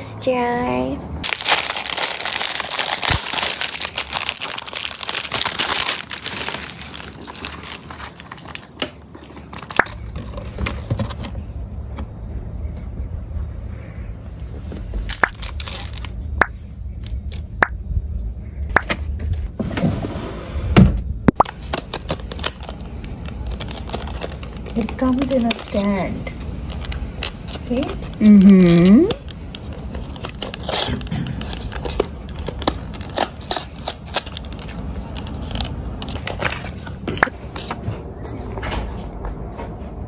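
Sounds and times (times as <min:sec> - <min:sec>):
paper crinkling: 0:01.2 - 0:11.3, 0:14.8 - 0:16.3, 0:21.4 - 0:38.6.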